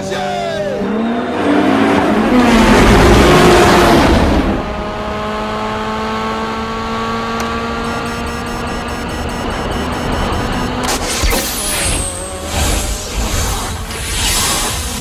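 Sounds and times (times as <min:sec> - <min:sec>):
car engine accelerating: 0:00.4 - 0:15.0
cars launching and passing: 0:00.6 - 0:06.0
faint electronic chirping: 0:08.2 - 0:10.8.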